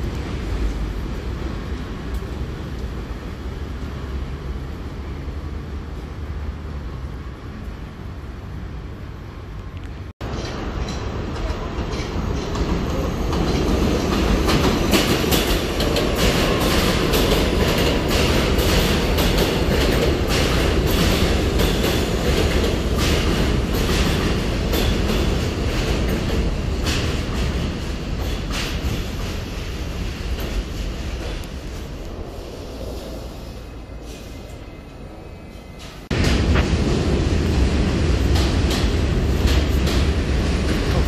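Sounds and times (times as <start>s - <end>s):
subway train rumble: 0.0s - 41.0s
wheels clacking over rail joints: 10.2s - 32.0s, 35.8s - 41.0s.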